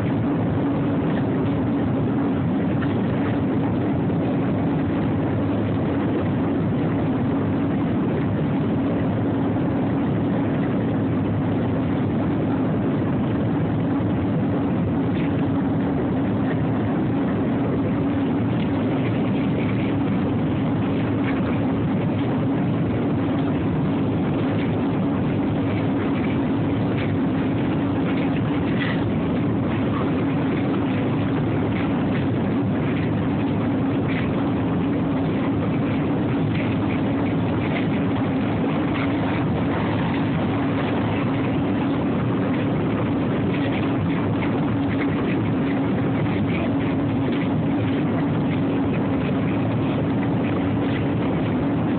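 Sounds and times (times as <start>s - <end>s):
car engine drone inside cabin: 0.0s - 51.9s.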